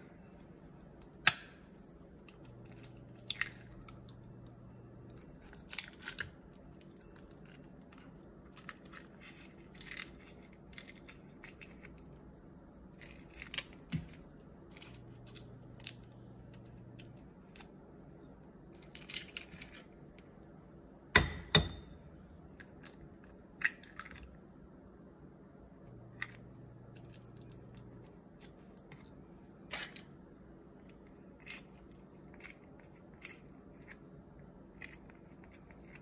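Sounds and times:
eggshells cracking: 2.2 - 12.2.

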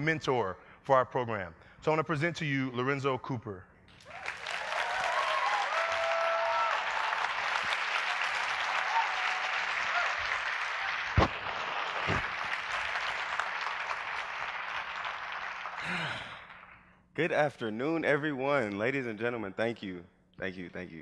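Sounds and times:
audience applauding: 4.0 - 16.8
voices cheering: 4.1 - 12.3
thumps: 11.1 - 12.3.

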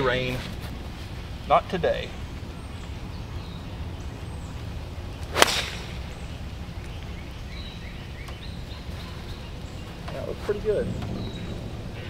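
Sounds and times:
golf club striking ball: 5.2 - 6.2.

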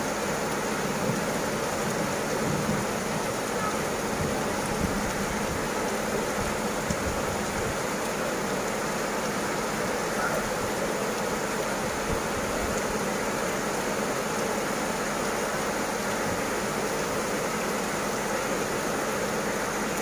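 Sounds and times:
heavy rain hiss: 0.0 - 20.0
running floodwater: 0.0 - 20.0.

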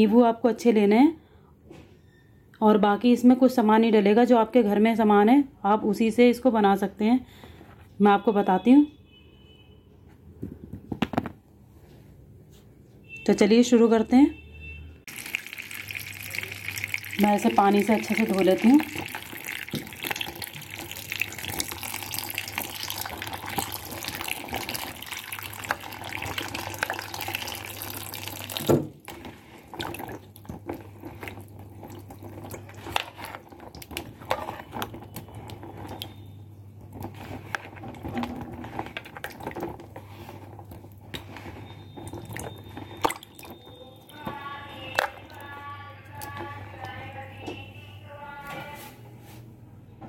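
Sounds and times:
water dripping: 15.1 - 37.0, 39.0 - 39.9, 41.8 - 45.5
tap water running: 15.1 - 45.4.

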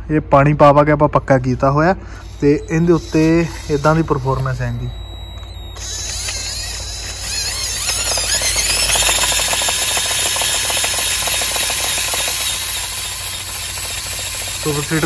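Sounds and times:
small electric motor whining: 2.0 - 15.0
machine rattling on hard ground: 5.0 - 15.0.

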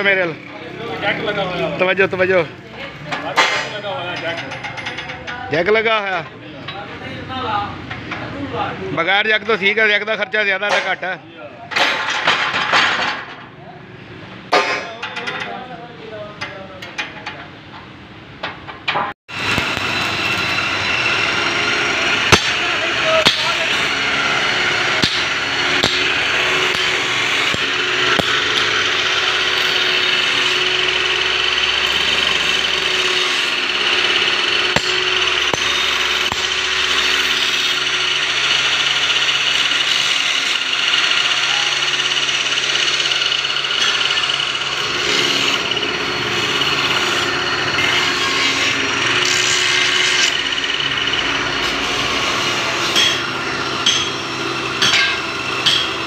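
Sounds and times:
power tool whining: 19.3 - 56.0.

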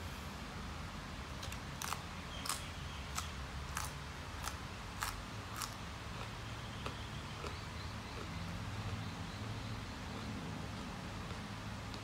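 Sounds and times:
low steady hum: 0.0 - 12.0
crunchy chewing of greens: 1.4 - 9.2.

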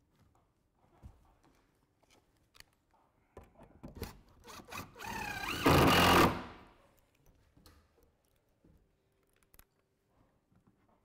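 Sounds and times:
cordless drill driving a screw: 4.5 - 6.5.

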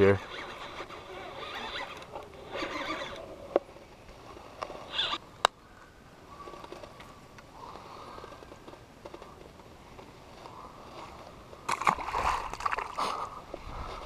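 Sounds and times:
water splashing: 11.7 - 13.3.

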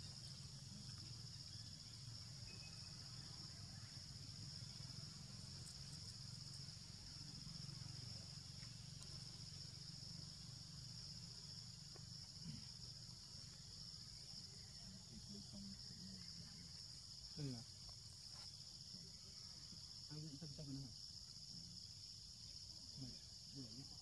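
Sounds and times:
high-pitched insect drone: 0.0 - 17.7.

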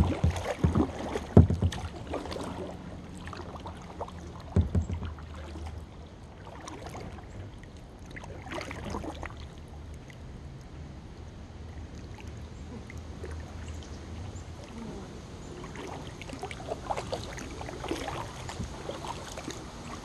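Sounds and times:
kayak paddle splashing in water: 0.0 - 9.6, 15.5 - 20.0.

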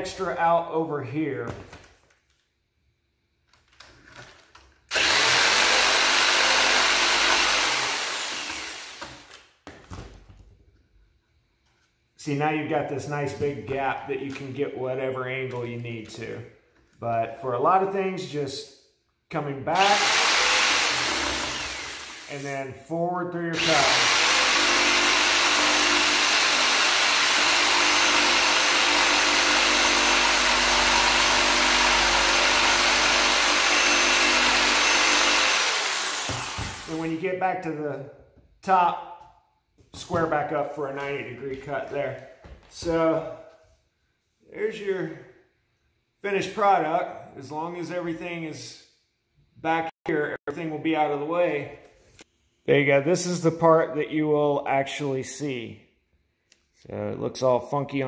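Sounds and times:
jigsaw cutting wood: 4.9 - 9.3, 19.8 - 22.4, 23.6 - 37.2.

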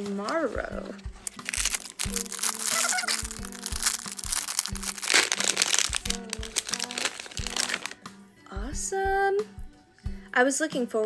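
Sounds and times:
background music with beat: 0.0 - 10.4
foil bag crinkling and tearing: 1.3 - 8.0.

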